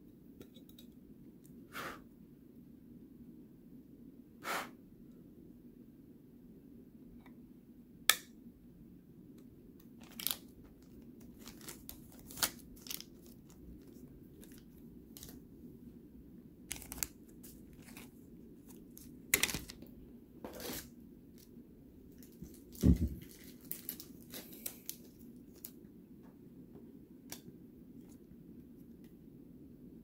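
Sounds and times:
plastic sleeves crinkling: 9.8 - 15.5, 16.6 - 19.9, 22.1 - 25.8.

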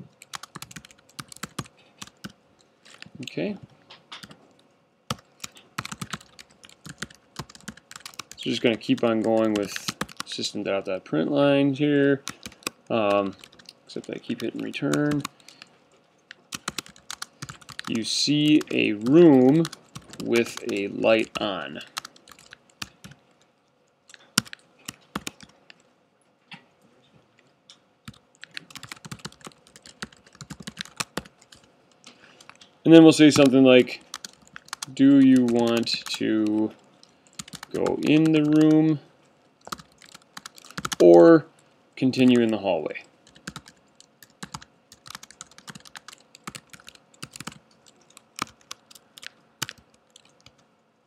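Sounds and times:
computer keyboard typing: 0.2 - 3.1, 5.1 - 10.4, 12.2 - 15.7, 16.3 - 23.2, 24.1 - 25.8, 28.1 - 38.9, 39.6 - 41.2, 43.2 - 50.6.

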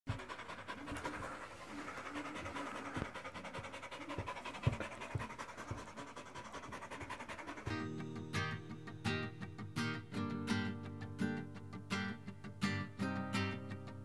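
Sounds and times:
dog panting: 0.1 - 8.1.

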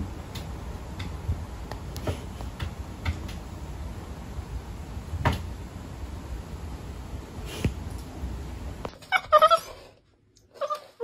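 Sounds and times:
cats' paws tapping and bumping: 0.0 - 3.5
low room noise: 0.0 - 11.0.

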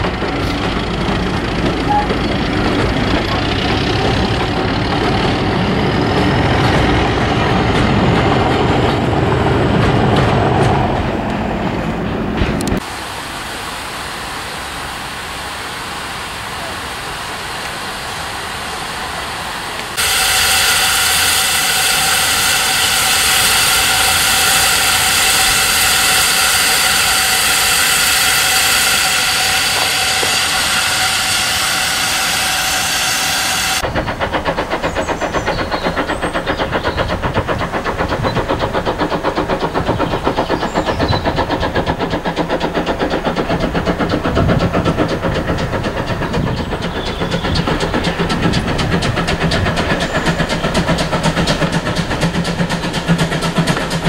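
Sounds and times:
locomotive engine throbbing: 0.0 - 54.0
steam safety valve hissing: 12.8 - 54.0.

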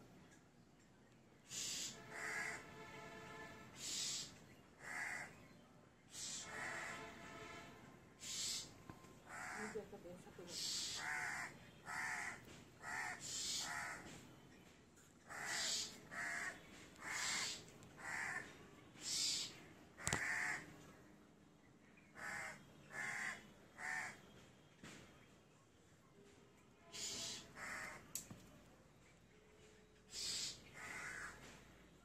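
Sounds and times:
crows cawing: 1.5 - 2.7, 3.8 - 5.4, 6.1 - 7.2, 8.2 - 9.9, 10.5 - 14.2, 15.2 - 20.7, 22.1 - 24.3, 26.9 - 28.2, 30.1 - 31.6.

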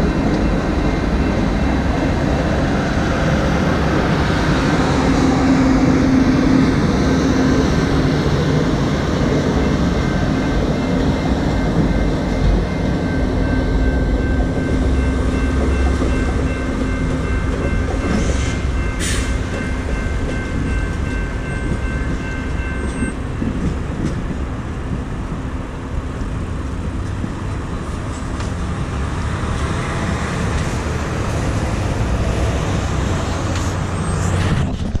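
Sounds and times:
crossing warning bell: 0.0 - 25.5
road traffic: 0.0 - 35.0
train rumbling: 0.0 - 35.0.

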